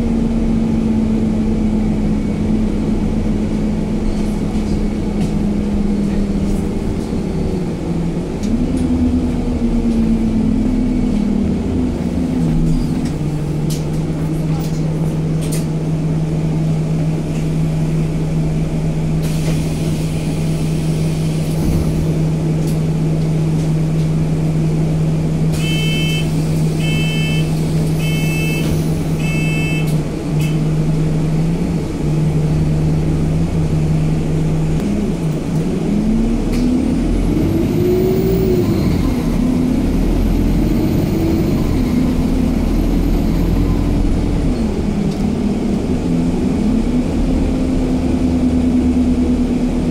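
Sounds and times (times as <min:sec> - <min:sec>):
bus engine: 0:00.0 - 0:49.9
door warning beeps: 0:25.6 - 0:26.2, 0:26.8 - 0:29.9.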